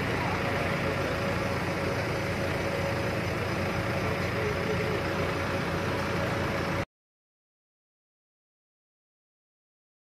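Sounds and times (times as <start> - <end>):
steady hum: 0.0 - 6.9
vehicle engines idling: 0.0 - 6.9.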